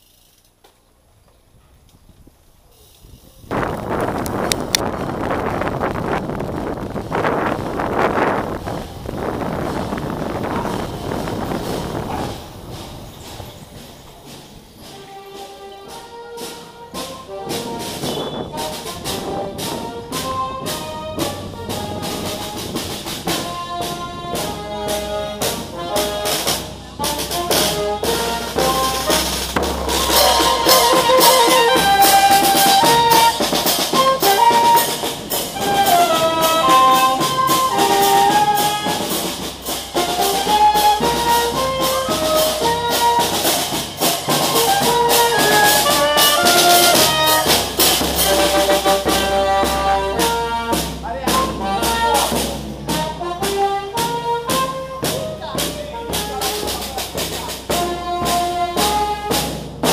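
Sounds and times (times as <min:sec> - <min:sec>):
snare and bass drum beat: 0:09.4 - 0:59.9
saxophone melody: 0:14.8 - 0:59.9.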